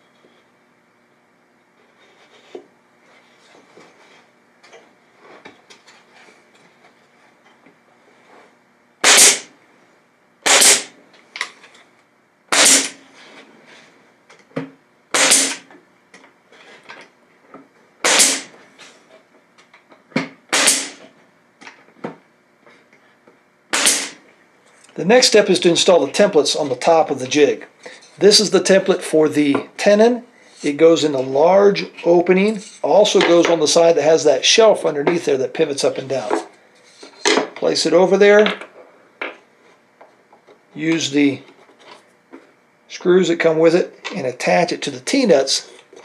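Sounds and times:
nail gun shots: 9.0 - 9.5, 10.4 - 10.9, 12.5 - 13.0, 15.1 - 15.7, 18.0 - 18.5, 20.5 - 21.0, 23.7 - 24.2.

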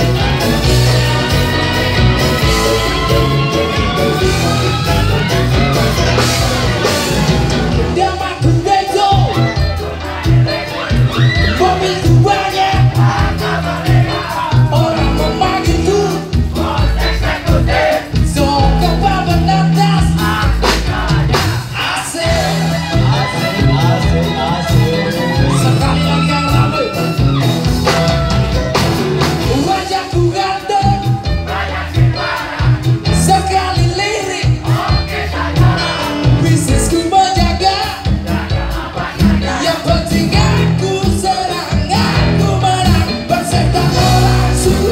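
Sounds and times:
bass line: 0.0 - 44.9
drums: 0.0 - 44.9
live band playing: 0.0 - 44.9
person singing: 7.9 - 16.9, 39.3 - 44.9.

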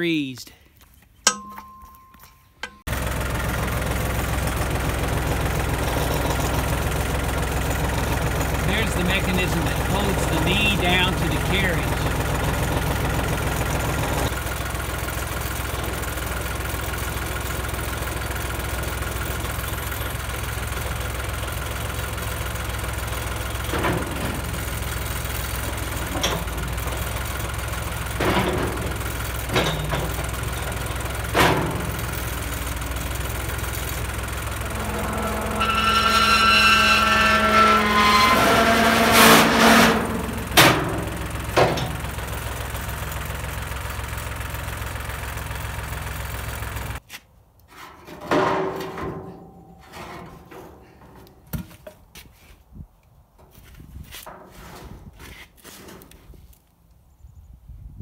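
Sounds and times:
metal clanks: 1.2 - 2.9, 23.5 - 42.7, 47.8 - 51.6
tractor engine idling: 1.2 - 47.0
high whine: 33.7 - 41.3.

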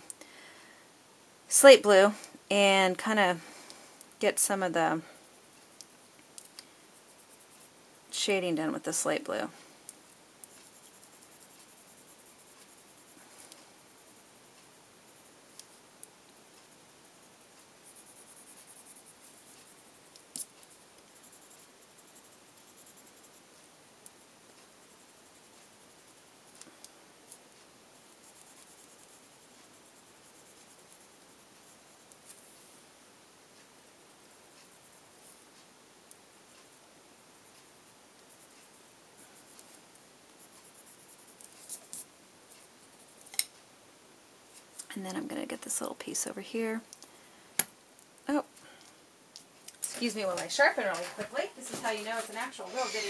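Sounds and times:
colored pencil scratching on paper: 10.4 - 14.4, 16.6 - 23.7, 28.0 - 32.7, 36.5 - 43.2, 50.4 - 53.0.

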